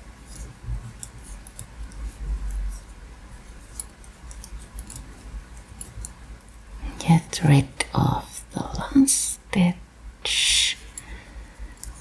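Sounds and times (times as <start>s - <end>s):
wooden knitting needles clicking: 3.7s - 6.2s.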